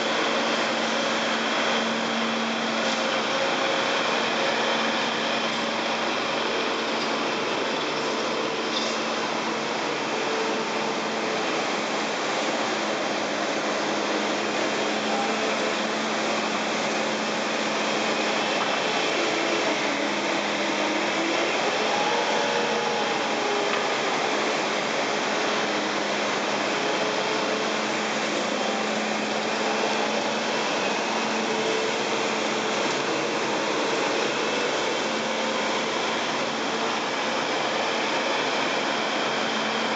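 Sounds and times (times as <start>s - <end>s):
diesel engine running under load: 0.0s - 39.9s.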